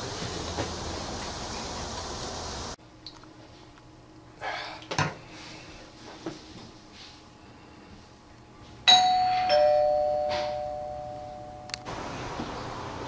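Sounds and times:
two-tone doorbell chime: 0:08.9 - 0:11.8.

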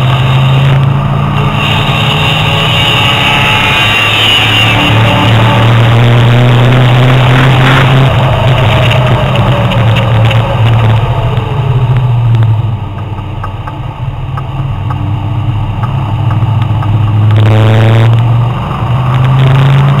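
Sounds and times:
sports car engine revving: 0:00.0 - 0:12.6, 0:15.8 - 0:20.0.

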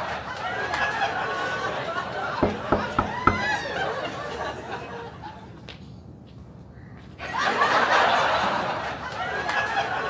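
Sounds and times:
people laughing: 0:00.0 - 0:02.8, 0:03.4 - 0:05.6, 0:07.2 - 0:10.0.

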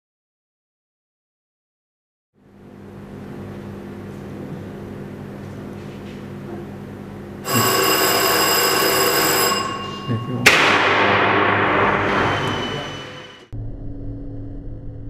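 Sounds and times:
electric warning alarm ringing: 0:07.4 - 0:13.5
sharp electrical bang: 0:10.4 - 0:13.5.

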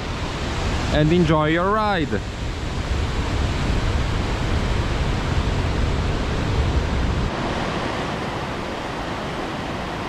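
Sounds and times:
river rushing over rapids: 0:00.0 - 0:10.0
wind buffeting microphone: 0:00.0 - 0:10.0.

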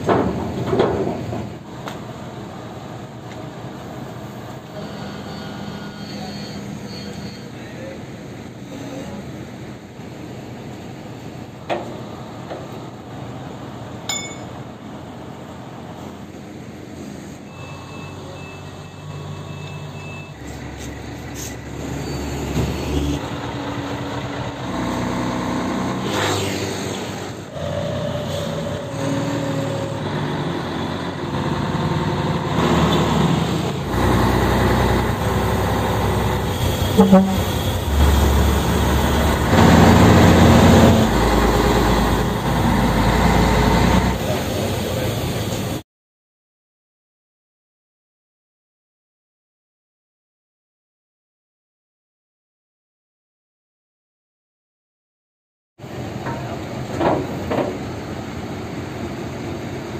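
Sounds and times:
truck diesel engine pulling away: 0:17.5 - 0:45.8.

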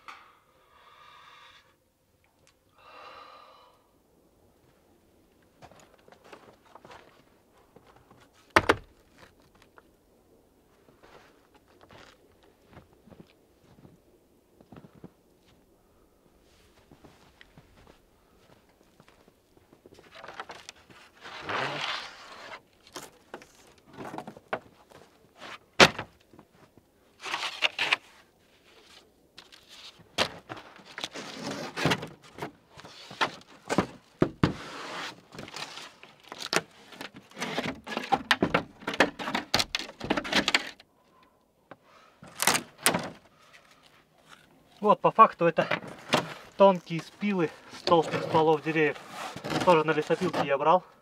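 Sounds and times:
rustling: 0:14.6 - 0:41.2, 0:45.7 - 0:50.6.

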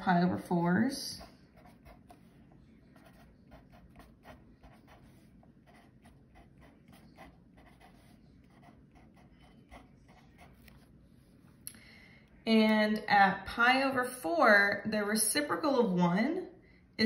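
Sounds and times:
pencil scratching on paper: 0:01.0 - 0:11.0.

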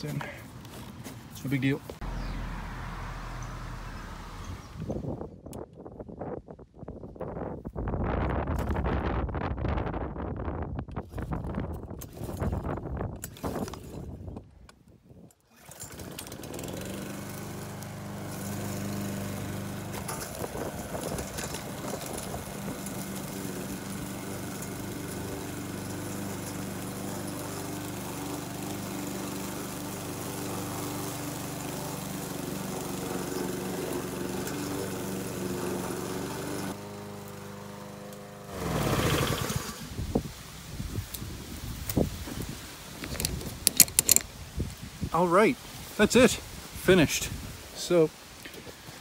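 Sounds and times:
lawn mower engine running: 0:15.5 - 0:40.1, 0:42.9 - 0:44.4.

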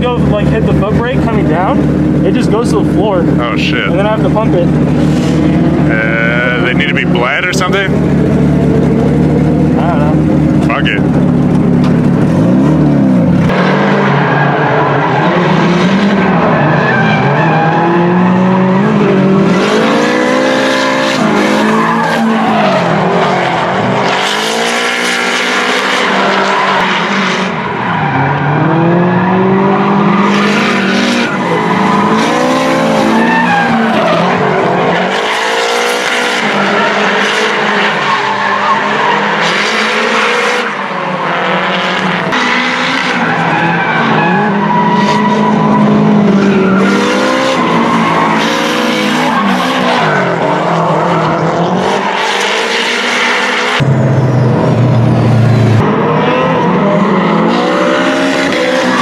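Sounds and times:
car engines revving: 0:00.0 - 0:59.0
tyre squeal and skidding: 0:16.2 - 0:23.8, 0:25.2 - 0:41.6, 0:42.3 - 0:59.0.

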